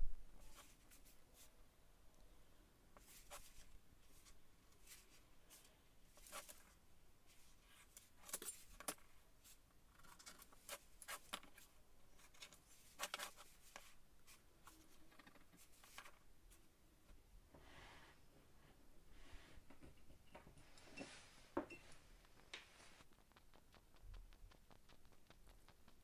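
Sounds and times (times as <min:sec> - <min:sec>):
pen scratching on wood: 0:22.2 - 0:26.0.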